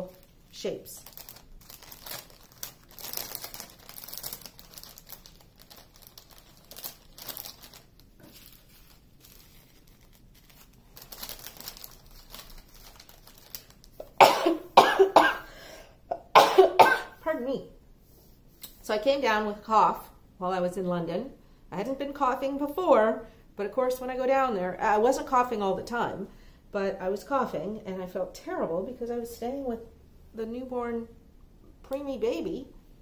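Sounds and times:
plastic bags crinkling: 0:00.0 - 0:14.6
woman coughing: 0:14.0 - 0:15.5, 0:16.1 - 0:17.2.

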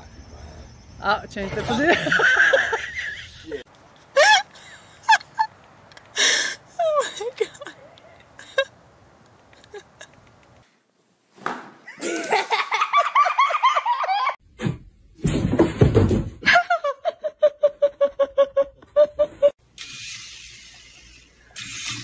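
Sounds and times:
people laughing: 0:01.6 - 0:03.6.

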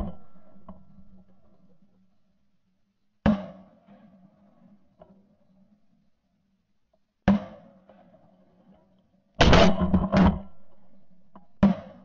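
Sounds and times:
shotgun blasts: 0:09.4 - 0:10.9.

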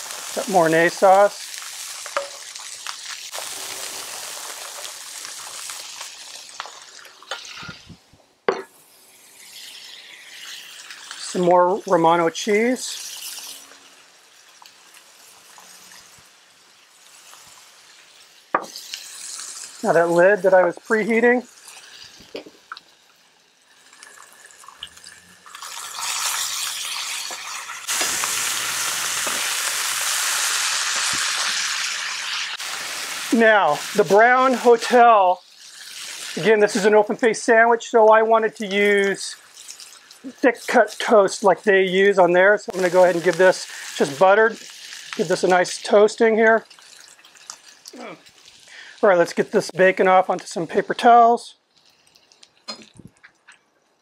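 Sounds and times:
meat sizzling on a griddle: 0:00.0 - 0:52.8.

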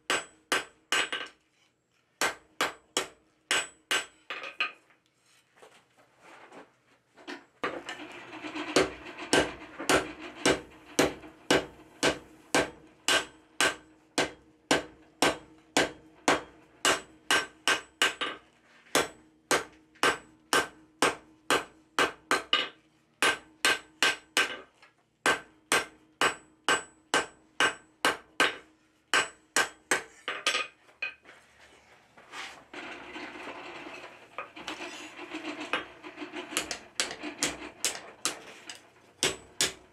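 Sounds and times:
hammer striking hot steel on anvil: 0:00.1 - 0:01.3, 0:02.2 - 0:04.2, 0:08.8 - 0:22.6, 0:23.2 - 0:24.6, 0:25.2 - 0:30.6, 0:35.7 - 0:39.9.

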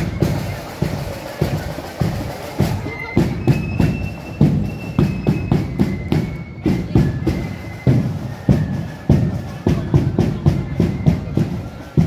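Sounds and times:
drum beating steadily: 0:00.0 - 0:12.0
marching band playing: 0:00.0 - 0:12.0.

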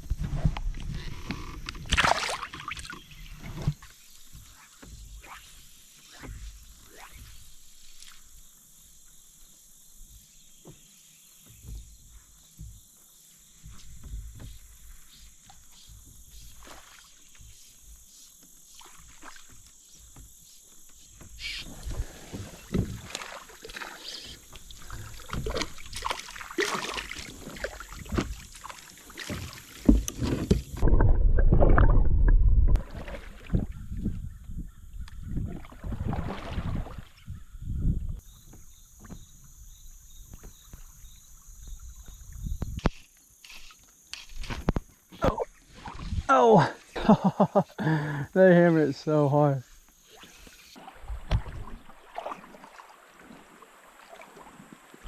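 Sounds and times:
paddle strokes splashing: 0:00.2 - 0:08.5, 0:13.5 - 0:30.9, 0:32.8 - 0:34.0, 0:35.1 - 0:37.3, 0:49.6 - 0:55.0
paddle knocking against hull: 0:10.6 - 0:32.0, 0:51.0 - 0:52.6.

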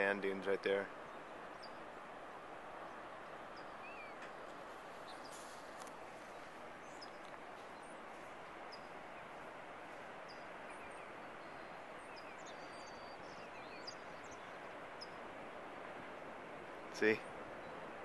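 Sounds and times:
distant surf breaking: 0:00.0 - 0:18.0
faint bird chirps: 0:01.0 - 0:01.9, 0:02.9 - 0:08.0, 0:08.6 - 0:09.4, 0:10.2 - 0:15.3.

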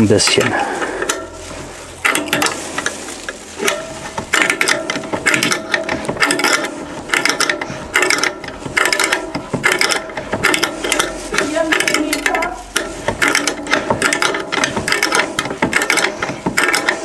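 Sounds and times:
hand ratchet clicking: 0:00.0 - 0:17.0.

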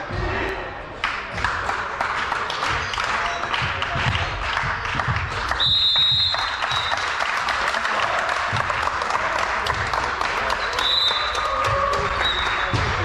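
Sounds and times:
people clapping: 0:00.9 - 0:13.0
high whistle: 0:05.6 - 0:07.1, 0:10.7 - 0:11.4, 0:12.2 - 0:12.8.

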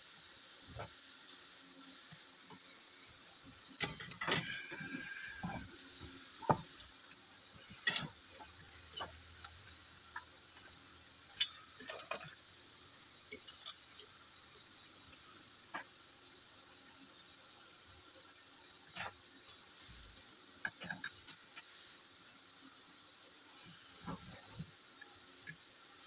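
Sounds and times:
small metallic clinks: 0:11.3 - 0:12.4.

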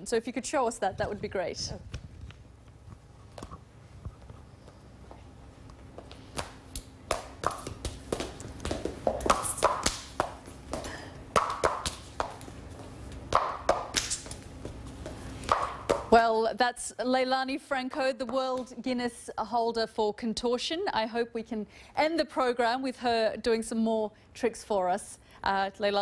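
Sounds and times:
feet and hands tapping floor: 0:01.8 - 0:16.2.

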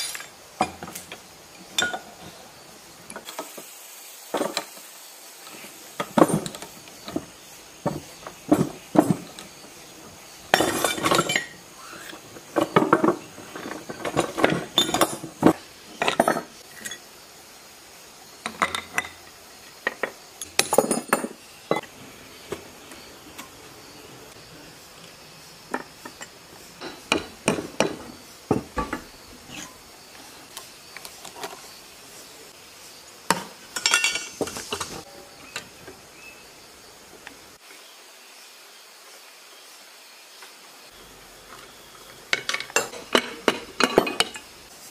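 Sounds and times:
hand tools clanking on metal: 0:00.0 - 0:02.4, 0:06.0 - 0:09.8, 0:10.5 - 0:11.7, 0:12.4 - 0:17.1, 0:18.4 - 0:22.7, 0:25.7 - 0:29.8, 0:33.3 - 0:35.7, 0:42.2 - 0:44.6.

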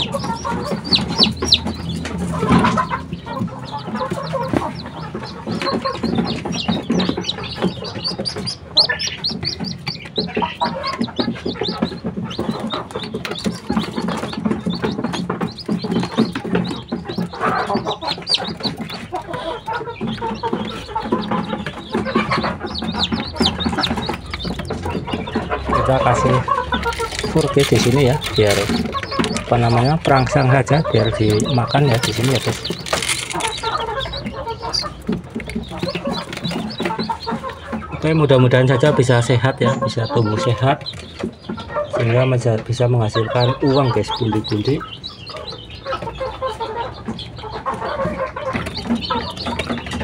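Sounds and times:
chicken clucking: 0:00.0 - 0:50.0
chicks peeping: 0:00.0 - 0:50.0.

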